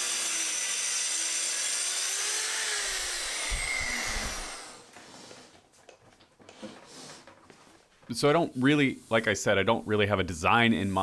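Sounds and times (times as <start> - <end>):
track saw cutting particleboard: 0.0 - 4.9.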